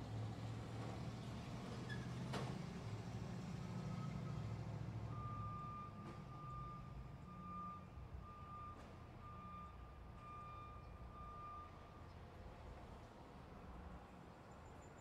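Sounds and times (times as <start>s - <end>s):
truck reversing alarm beeping: 5.1s - 12.0s.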